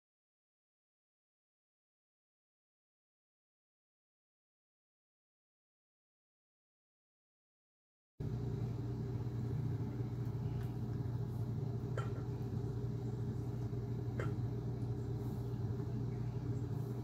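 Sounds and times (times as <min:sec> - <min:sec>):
steady low hum: 0:08.2 - 0:17.0.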